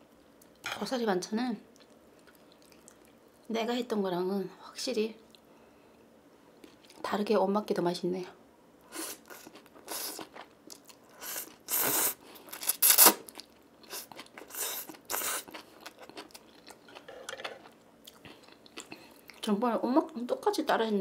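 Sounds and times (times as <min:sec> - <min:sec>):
chewing: 0:01.8 - 0:03.2, 0:09.2 - 0:19.5
noodle slurping: 0:11.2 - 0:13.2, 0:13.9 - 0:15.6.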